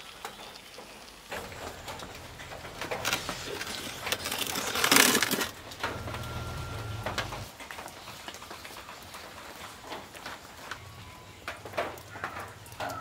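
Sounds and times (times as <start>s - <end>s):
metal baking tray scraping: 1.3s - 7.5s.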